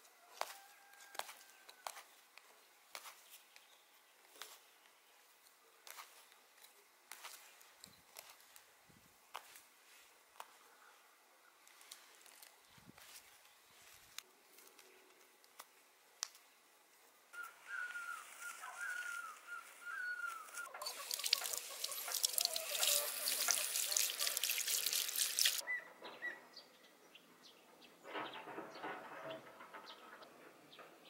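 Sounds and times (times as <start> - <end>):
bird chirping: 17.3 - 24.5
tap water splashing in basin: 20.8 - 25.6.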